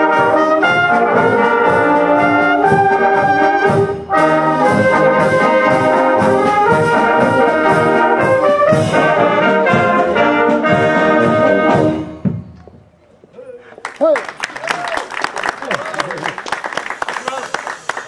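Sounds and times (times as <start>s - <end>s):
brass and saxophone band playing: 0.0s - 12.4s.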